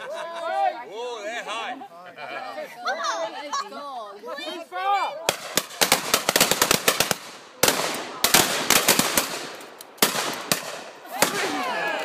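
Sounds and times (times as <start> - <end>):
shotgun shots: 5.3 - 11.6
voices calling out: 10.2 - 12.0.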